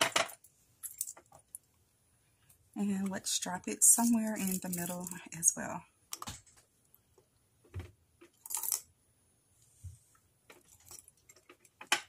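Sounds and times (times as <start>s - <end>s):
trinkets rustling: 0.0s - 1.7s, 3.8s - 5.4s, 8.3s - 8.9s, 10.5s - 11.6s.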